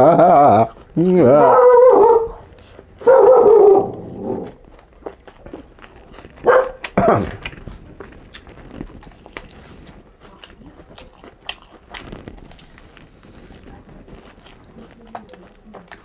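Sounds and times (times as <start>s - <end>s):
person chewing food: 0.0s - 16.0s.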